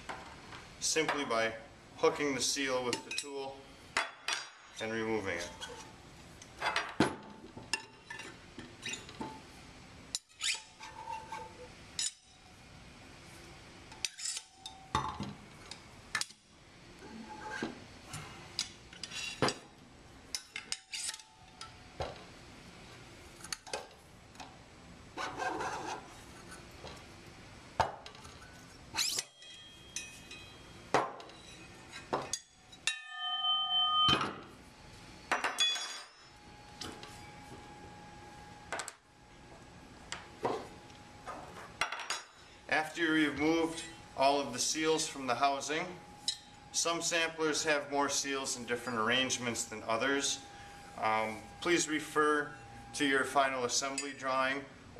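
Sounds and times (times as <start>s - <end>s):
metal part clang ringing: 32.3s - 34.4s, 35.3s - 36.3s
metal parts clinking on table: 35.4s - 36.3s.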